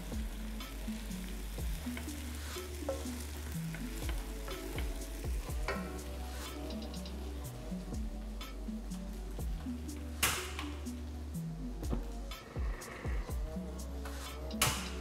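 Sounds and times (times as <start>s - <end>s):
rice sizzling in a wok: 0.0s - 7.8s
background music: 0.0s - 15.0s.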